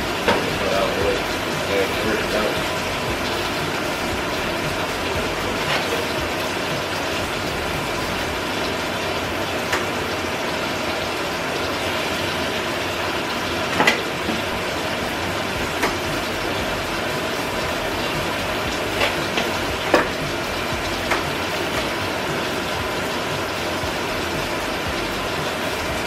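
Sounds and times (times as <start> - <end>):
food sizzling in frying pans: 0.0 - 26.0.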